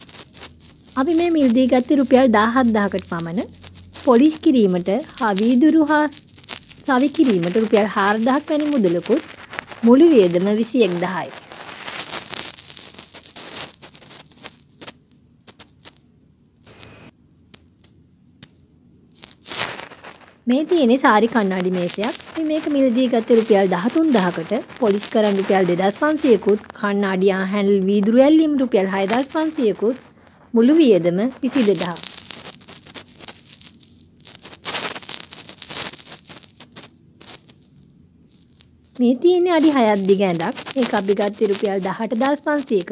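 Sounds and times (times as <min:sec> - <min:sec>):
rustling crackling noise: 0:00.0 - 0:42.9.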